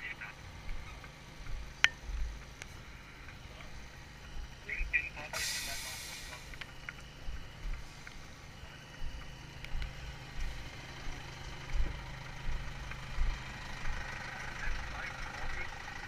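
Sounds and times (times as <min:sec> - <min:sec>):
engine idling: 0:00.0 - 0:16.0
footsteps thumping: 0:11.7 - 0:12.6.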